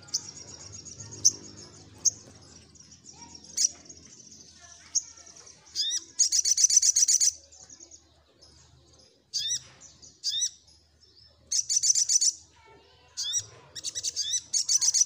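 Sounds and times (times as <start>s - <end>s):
bird chirping: 0.0s - 15.0s
bird trilling: 4.6s - 7.4s, 9.3s - 10.6s, 11.5s - 12.4s, 13.1s - 15.0s.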